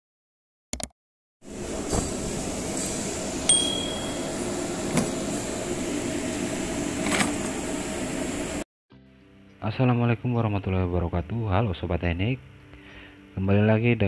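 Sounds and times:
steady background hum: 1.5 - 8.6
short metallic ring: 3.5 - 4.3.

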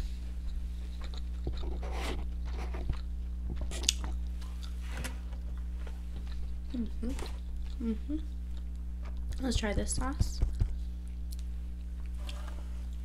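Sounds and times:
steady low hum: 0.0 - 13.0
chewing crispy fried food: 0.9 - 4.8, 5.6 - 9.5.

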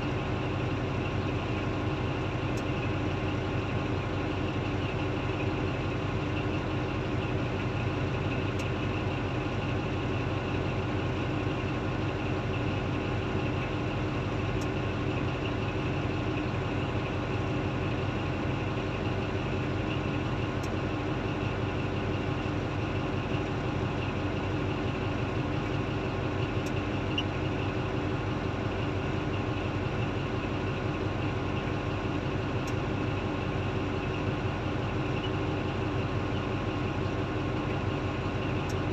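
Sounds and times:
bulldozer diesel engine: 0.0 - 38.9
excavator diesel engine: 0.0 - 38.9.

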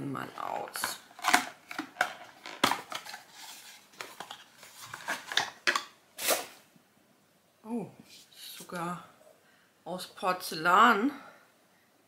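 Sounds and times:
cardboard rustling and scraping: 1.2 - 5.5.

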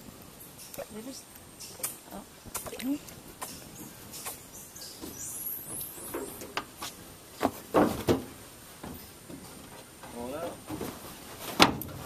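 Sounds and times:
high falling bird chirps: 3.4 - 6.6.

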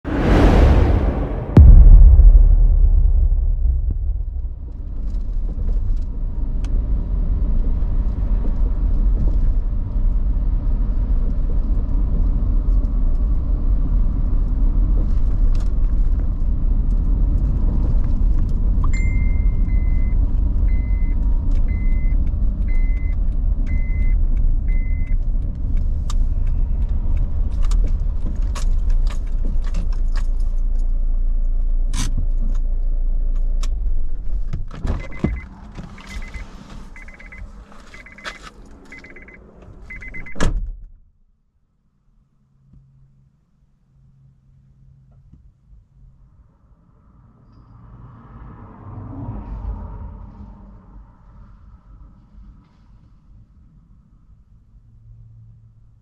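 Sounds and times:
tyre and engine rumble: 2.6 - 40.2
short electronic beeps: 19.0 - 20.1, 20.7 - 21.1, 21.7 - 23.1, 23.7 - 25.2, 35.0 - 40.4.

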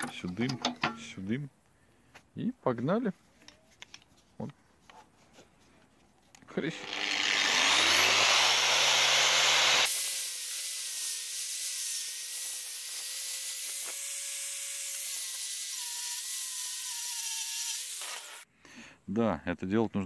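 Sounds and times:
angle grinder with wire brush: 6.6 - 18.4.

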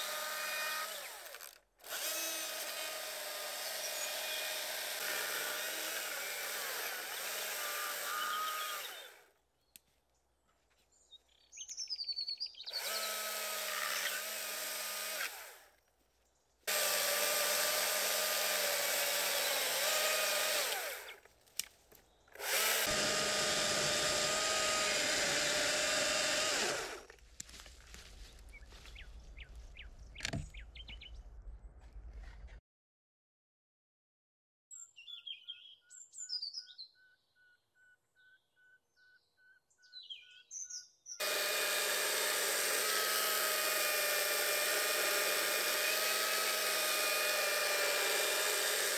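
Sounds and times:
chainsaw cutting log: 0.0 - 9.3, 12.7 - 15.7, 16.7 - 21.2, 22.4 - 27.2, 41.2 - 48.9
bird chirping: 8.2 - 13.2, 28.2 - 31.4, 34.7 - 41.2.

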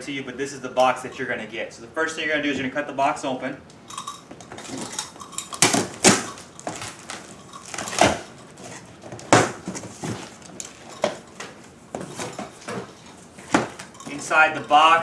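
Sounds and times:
box cutter slicing packing tape: 5.6 - 8.3
cardboard flaps rustling: 5.6 - 14.3.

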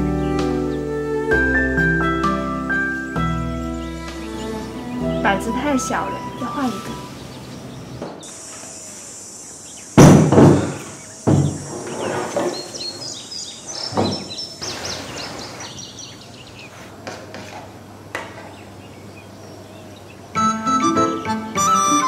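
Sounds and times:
insect drone: 0.0 - 15.2
heavy knocks on wooden table: 10.0 - 11.7
short bird chirps: 10.8 - 16.0.

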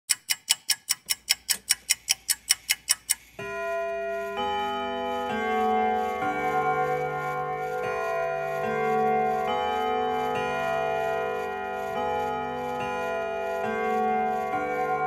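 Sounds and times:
rapid clock ticking: 0.1 - 7.7
music with slow held chords: 3.2 - 15.0.

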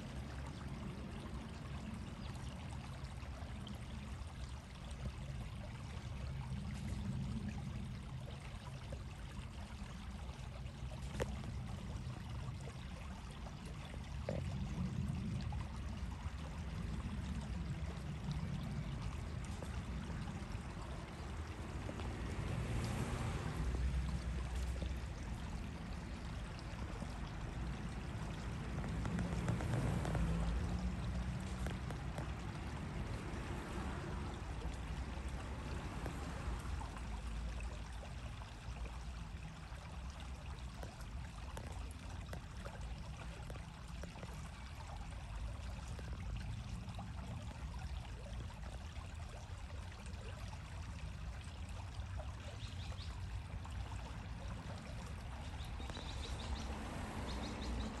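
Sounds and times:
running water rushing: 0.0 - 58.0.

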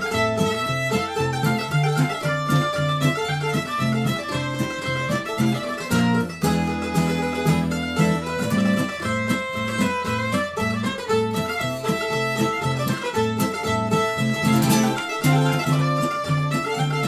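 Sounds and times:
bowed fiddle melody: 0.0 - 17.0
plucked mandolin: 0.0 - 17.0
strummed acoustic guitar: 0.0 - 17.0.

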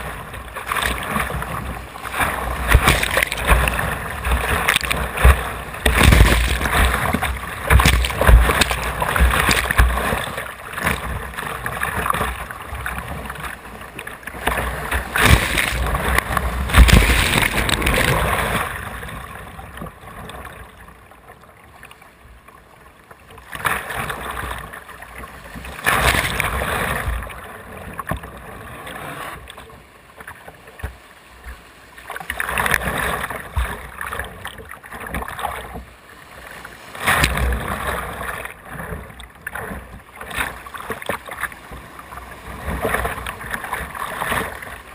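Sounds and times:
whitewater rapids rushing: 2.0 - 12.3, 14.4 - 18.9.

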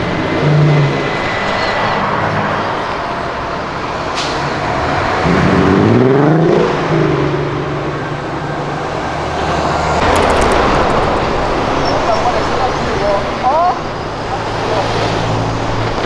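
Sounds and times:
car engine accelerating: 10.0 - 13.2.

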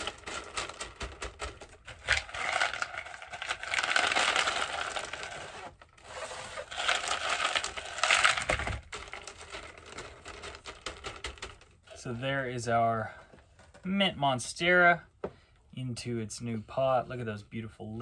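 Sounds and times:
clay pebbles poured rattling: 0.0 - 12.1.

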